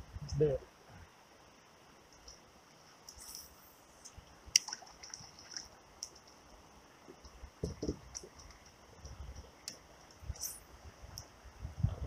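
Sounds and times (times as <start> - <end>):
dull knocks: 7.6 - 8.1.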